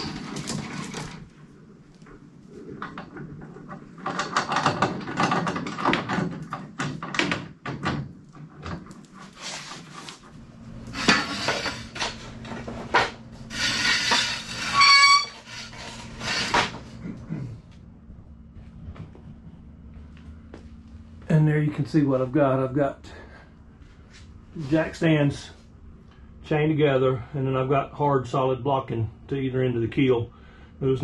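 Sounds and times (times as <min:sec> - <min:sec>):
metal clanks and scrapes: 0:00.0 - 0:01.3, 0:10.8 - 0:17.0
short metallic squeal: 0:13.5 - 0:16.7.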